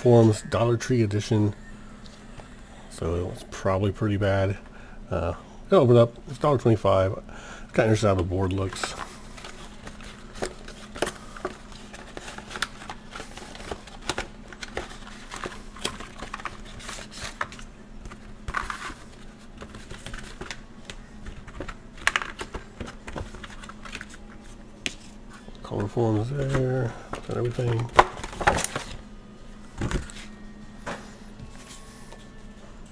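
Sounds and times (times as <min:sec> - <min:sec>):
rustling card and plastic: 0:07.8 - 0:29.0.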